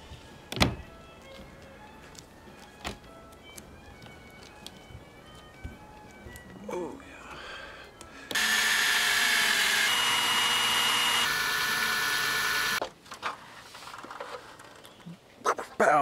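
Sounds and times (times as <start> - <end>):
cordless drill whining: 8.3 - 12.8.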